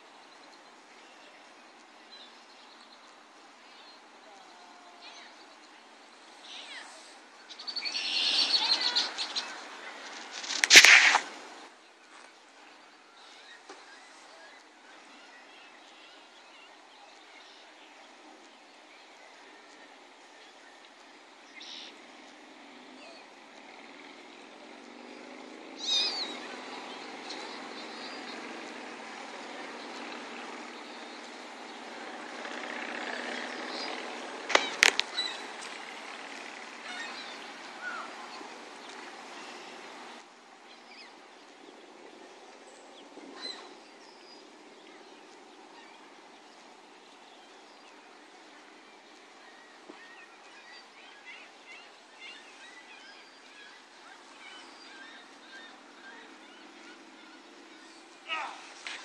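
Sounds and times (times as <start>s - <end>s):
outdoor hiss: 0.0s - 19.1s
faint bird chirps: 0.0s - 20.9s, 21.5s - 22.0s
outdoor background rush: 0.0s - 59.0s
small birds chirping: 0.0s - 59.0s.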